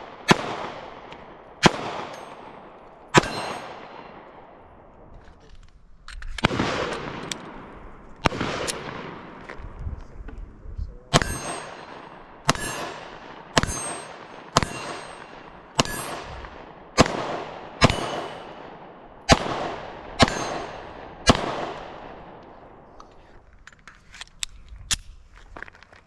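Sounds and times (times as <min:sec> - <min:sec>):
pistol shots: 0:00.0 - 0:04.5, 0:06.4 - 0:09.4, 0:11.1 - 0:22.5
gunshot echo off hillsides: 0:00.0 - 0:04.6, 0:06.4 - 0:09.6, 0:11.1 - 0:22.8.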